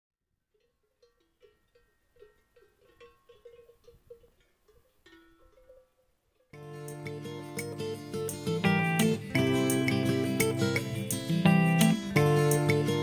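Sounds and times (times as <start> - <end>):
cowbells clanking: 0.5 - 9.2.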